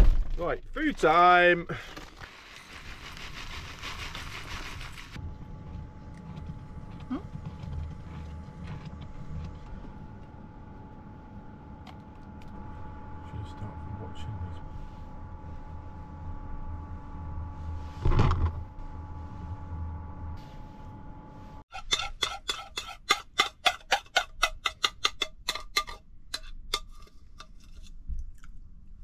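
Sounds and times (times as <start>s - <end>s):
steady hum: 4.8s - 21.7s
spoon scraping ceramic bowl: 21.7s - 28.0s.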